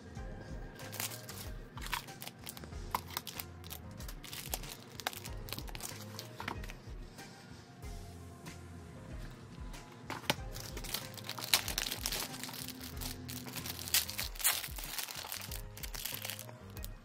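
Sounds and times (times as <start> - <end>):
background music: 0.0 - 17.0
plastic bag crinkling: 0.9 - 6.4, 10.5 - 16.9.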